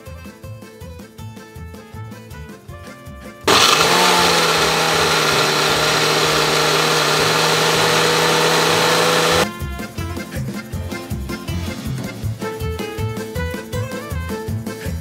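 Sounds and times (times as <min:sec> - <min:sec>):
blender motor running: 0:03.5 - 0:09.5.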